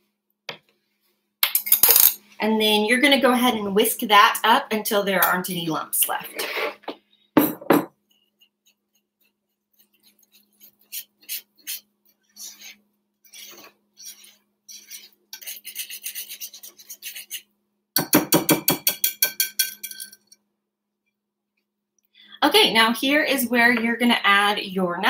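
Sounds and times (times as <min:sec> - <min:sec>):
whisk beating batter in glass bowl: 0:08.1 - 0:17.5.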